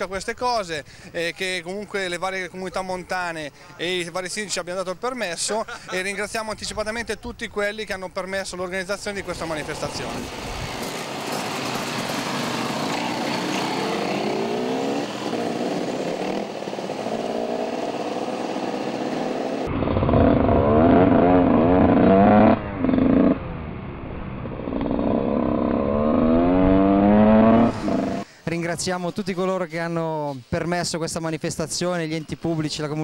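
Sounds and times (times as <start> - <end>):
dirt bike engines revving: 9.2 - 23.4, 24.6 - 28.3
dirt bike accelerating through gears: 10.1 - 23.6, 24.5 - 28.2.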